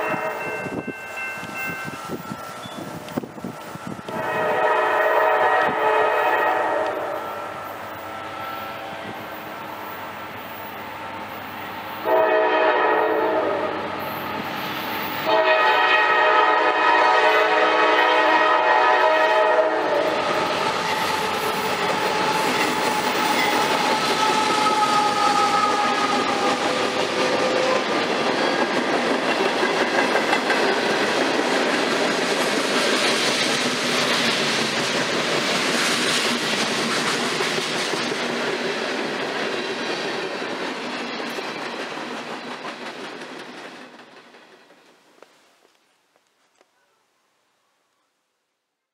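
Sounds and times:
train horn blasts: 0.0 - 2.2, 3.8 - 9.2, 12.0 - 14.0, 15.2 - 27.9
train wheels on rails: 0.0 - 46.6.

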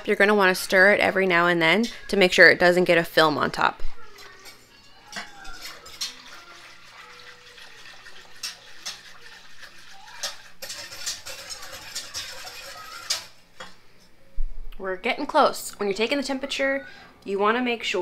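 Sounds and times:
whisk clinking against pot: 4.2 - 13.7
whisk swishing liquid: 5.3 - 13.4.

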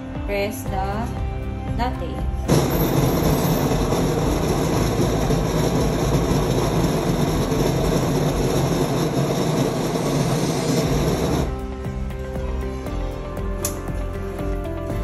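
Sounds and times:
coffee grinder grinding: 2.5 - 11.5.

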